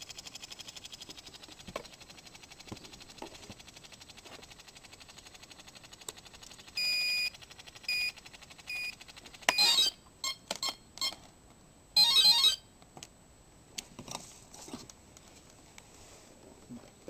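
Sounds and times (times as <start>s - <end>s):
faint rapid ticking: 0.0s - 9.4s
motor controller beeps: 6.6s - 11.2s, 12.0s - 12.6s.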